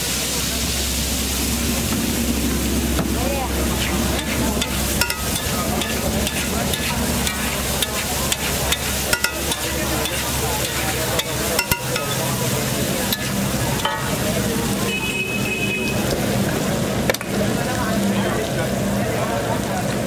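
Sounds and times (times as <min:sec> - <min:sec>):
food sizzling on griddle: 0:00.0 - 0:20.0
spatula clicking on griddle: 0:03.8 - 0:12.3, 0:13.0 - 0:14.1
metal spatula scraping: 0:03.8 - 0:14.2.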